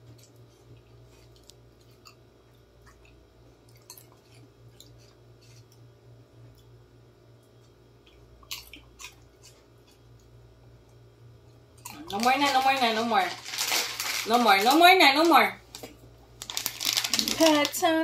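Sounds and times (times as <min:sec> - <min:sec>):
chewing crisp chips: 0:00.0 - 0:05.9, 0:07.6 - 0:10.4, 0:11.7 - 0:14.8, 0:15.7 - 0:17.8
low steady hum: 0:00.0 - 0:18.0.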